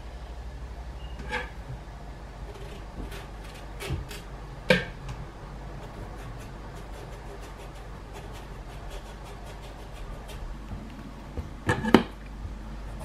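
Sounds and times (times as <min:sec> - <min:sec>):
knife scraping vegetable skin: 0:05.8 - 0:10.6.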